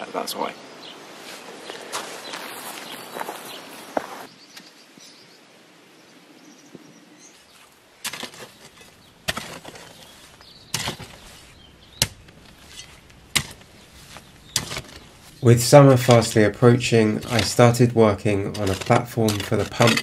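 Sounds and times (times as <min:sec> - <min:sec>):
hoe chopping into hard soil: 0:08.0 - 0:15.1.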